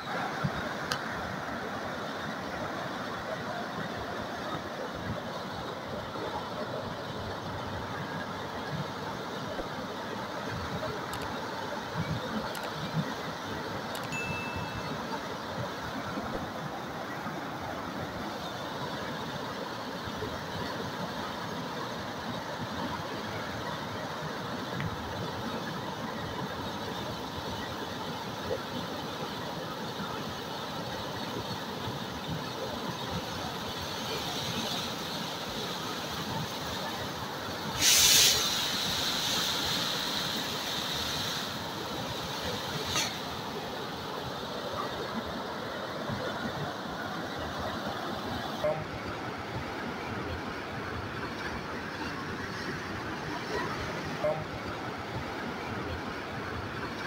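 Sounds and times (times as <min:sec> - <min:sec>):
river water rushing: 0:00.0 - 0:57.0
click and high ding: 0:14.0 - 0:15.0
sudden loud hiss: 0:37.6 - 0:43.5.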